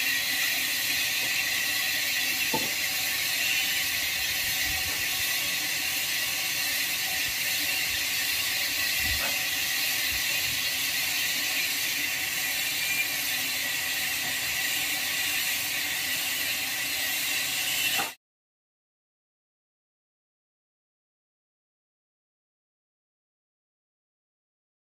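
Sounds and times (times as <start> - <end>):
high-pitched hiss: 0.0 - 18.2.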